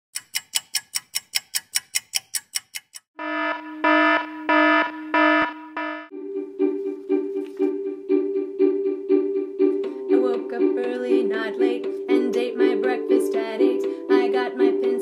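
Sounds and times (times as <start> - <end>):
rapid alarm ringing: 3.2 - 6.1
pitched alarm tone in long pulses: 3.2 - 6.2.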